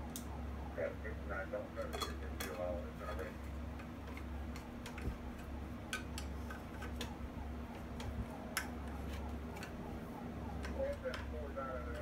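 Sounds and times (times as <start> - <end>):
steady low hum: 0.0 - 12.0
hands clicking and tapping grinder: 2.4 - 9.8.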